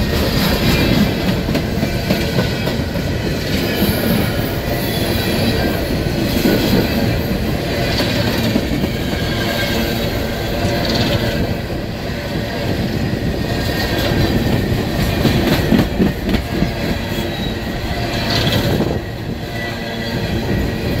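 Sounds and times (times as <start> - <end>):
train wheels rumbling on rail: 0.0 - 21.0
clacks over rail joints: 13.6 - 17.5
wheel squeals: 16.4 - 21.0.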